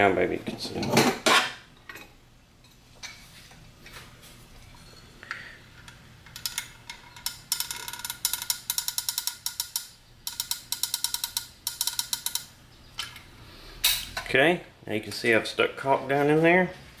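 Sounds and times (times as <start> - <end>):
caulking gun ratcheting clicks: 7.3 - 12.5.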